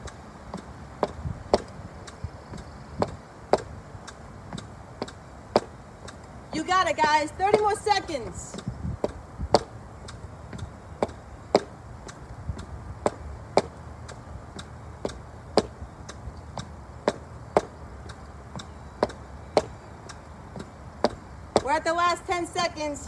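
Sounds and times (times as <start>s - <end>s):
boots clicking on brick steps: 2.5s - 6.2s, 7.5s - 7.9s, 8.5s - 19.7s, 20.6s - 21.7s.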